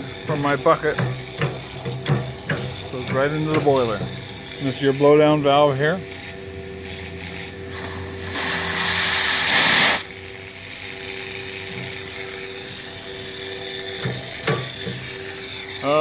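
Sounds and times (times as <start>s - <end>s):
steam hissing from valve: 7.7s - 10.1s.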